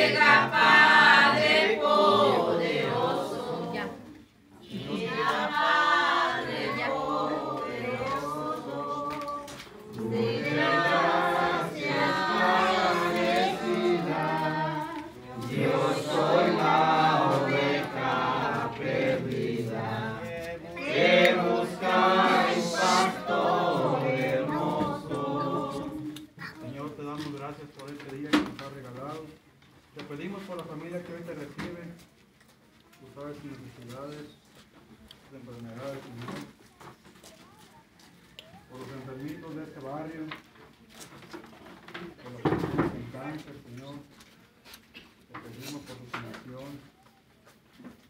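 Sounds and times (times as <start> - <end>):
group singing a hymn unaccompanied: 0.0 - 26.3.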